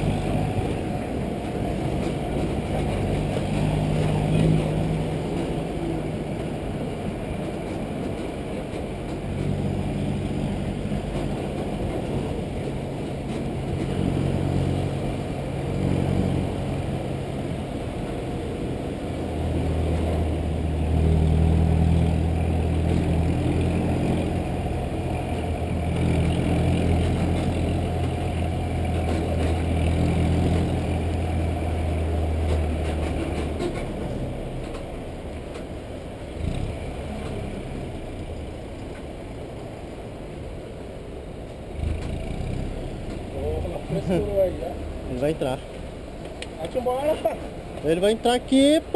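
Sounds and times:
bus diesel engine droning: 0.0s - 48.9s
road noise: 0.0s - 48.9s.

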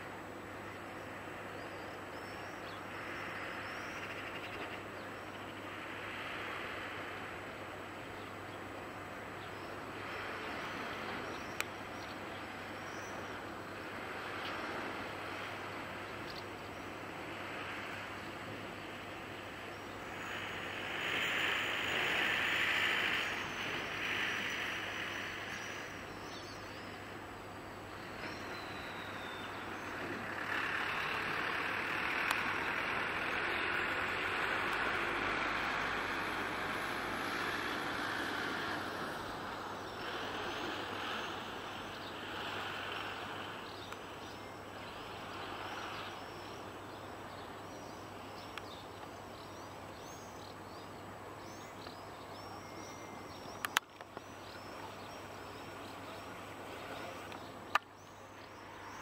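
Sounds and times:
small birds chirping: 15.2s - 59.0s
passing road vehicle: 28.2s - 48.3s.

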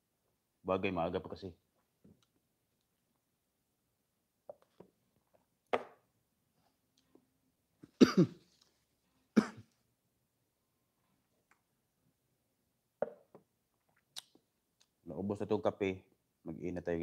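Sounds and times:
man coughing and clearing throat: 7.9s - 8.5s, 9.4s - 9.7s.

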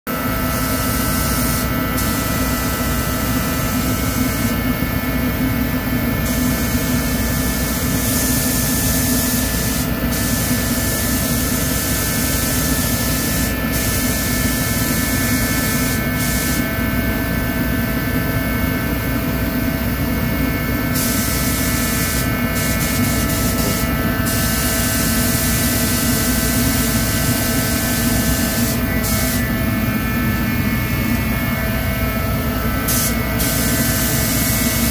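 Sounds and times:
forced-air heater droning: 0.1s - 34.9s
spray gun air hiss: 0.4s - 4.5s, 6.2s - 16.6s, 20.9s - 31.5s, 32.4s - 34.9s.

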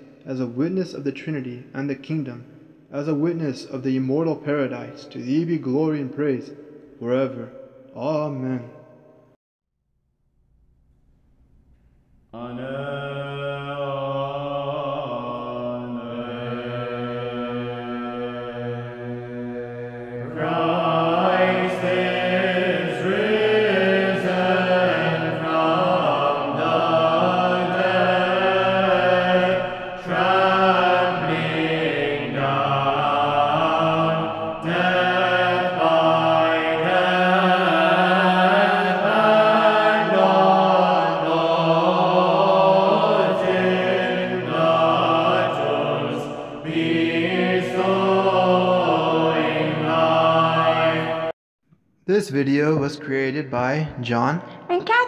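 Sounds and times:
choir chanting long notes: 12.4s - 51.4s.

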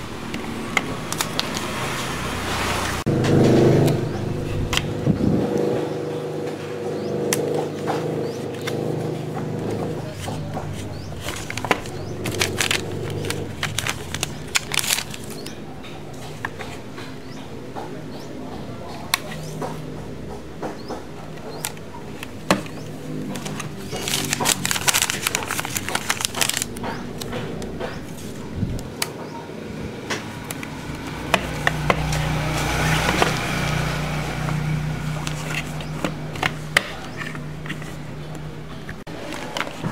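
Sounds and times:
steady low hum: 2.2s - 39.9s
sticker sheet crackling: 9.6s - 17.1s, 21.3s - 29.1s
plastic toy car clicking: 21.6s - 27.7s.

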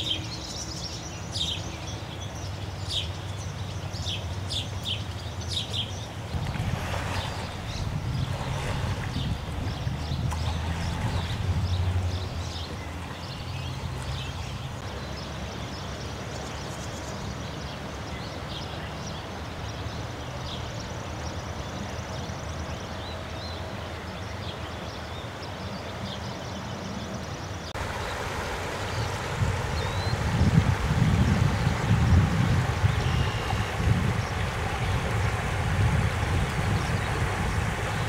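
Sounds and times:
floodwater rushing: 3.9s - 22.6s, 27.6s - 38.0s.

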